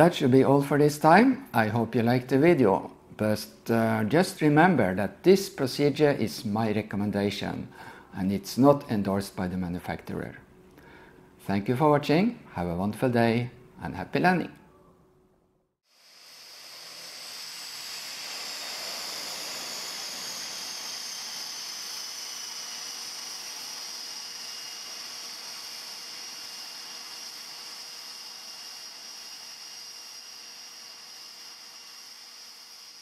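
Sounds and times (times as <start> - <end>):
aircraft turbine whine: 16.0 - 33.0.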